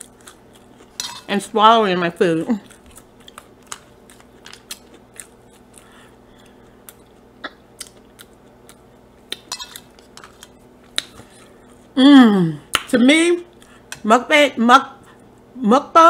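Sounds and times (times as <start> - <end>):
person chewing fries: 0.0 - 1.3, 2.6 - 11.9.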